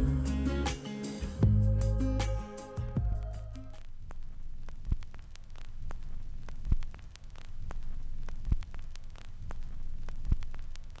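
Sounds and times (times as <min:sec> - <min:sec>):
low hum with crackle: 0:03.0 - 0:11.0.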